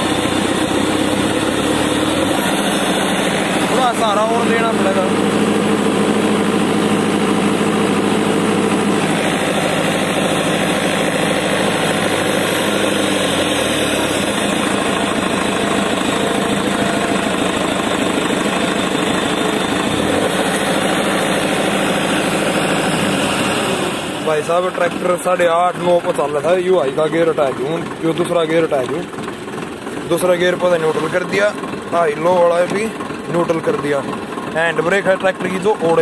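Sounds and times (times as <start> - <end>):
tractor diesel engine running: 0.0 - 36.0.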